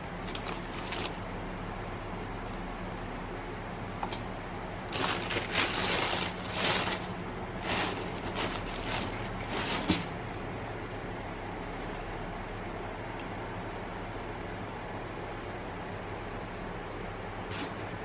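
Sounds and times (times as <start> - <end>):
tissue paper rustling: 4.9 - 10.1.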